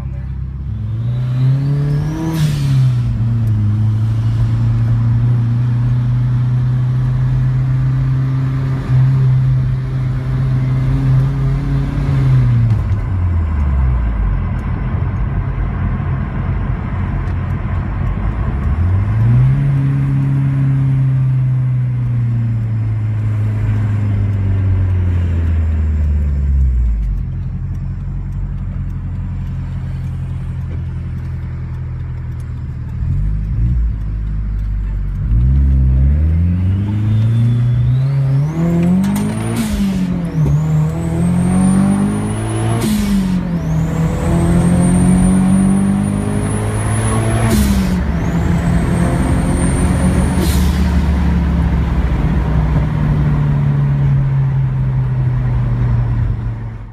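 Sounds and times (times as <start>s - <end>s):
car engine droning and revving: 0.0s - 56.9s.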